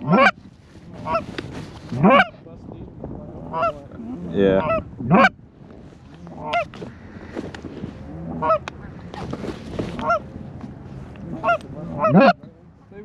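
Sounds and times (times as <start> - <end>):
goose honking: 0.0 - 0.4, 1.0 - 1.3, 1.9 - 2.3, 3.5 - 3.8, 4.6 - 5.4, 6.3 - 6.8, 8.2 - 8.7, 9.4 - 10.3, 11.2 - 12.5
faint rustle: 0.2 - 2.7, 5.5 - 12.2.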